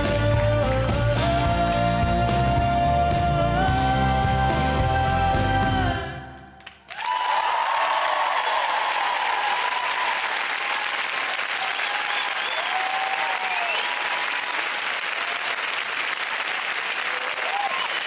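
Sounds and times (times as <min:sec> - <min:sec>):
audience applauding: 0:06.6 - 0:18.0
cheers and whoops: 0:06.9 - 0:15.6, 0:17.0 - 0:18.0.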